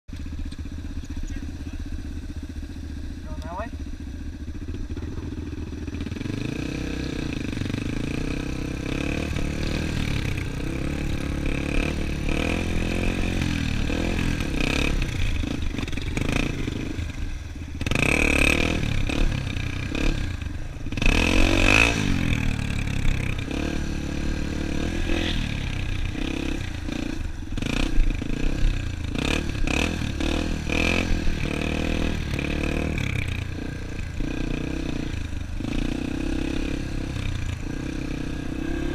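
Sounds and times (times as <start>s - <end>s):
dirt bike engine revving: 0.1s - 38.9s.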